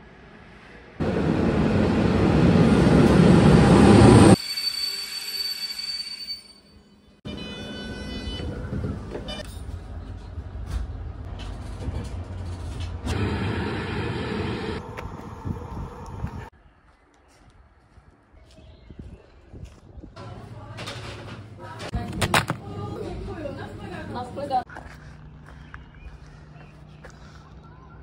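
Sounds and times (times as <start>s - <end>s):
train rushing past: 0.0s - 5.0s, 10.4s - 16.5s
rumble inside moving carriage: 8.2s - 13.6s.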